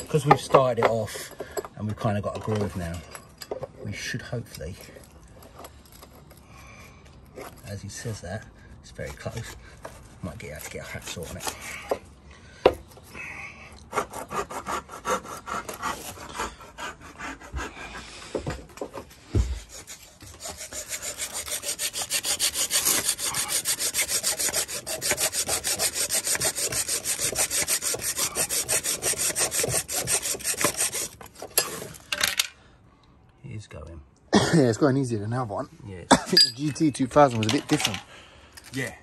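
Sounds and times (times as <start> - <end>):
hacksaw cutting metal: 0.0 - 6.3, 9.0 - 12.0, 13.8 - 17.5, 19.7 - 31.9.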